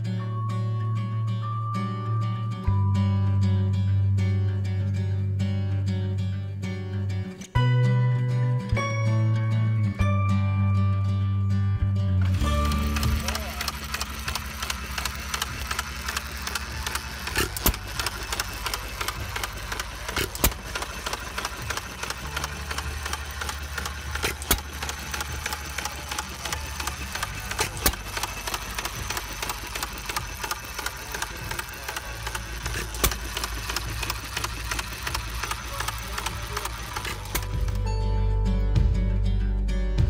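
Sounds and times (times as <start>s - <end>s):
stationary gas engine clattering: 12.2s - 37.9s.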